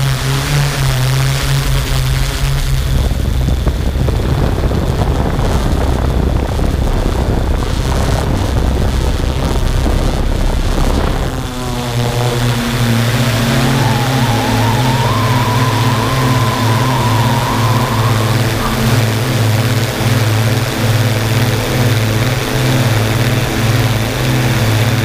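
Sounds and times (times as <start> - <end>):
vehicle engine hum: 2.5 - 25.0
rising whine: 11.2 - 20.4
loud rushing noise: 12.6 - 19.8.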